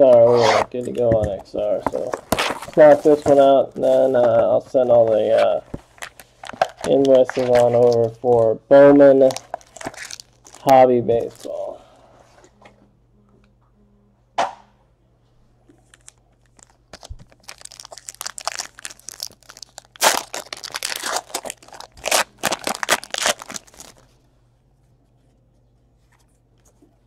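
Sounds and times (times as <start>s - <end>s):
plastic wrap tearing and crinkling: 1.8s - 4.0s, 5.2s - 8.3s, 9.2s - 11.7s, 15.8s - 24.1s
sharp knock: 14.4s - 14.7s.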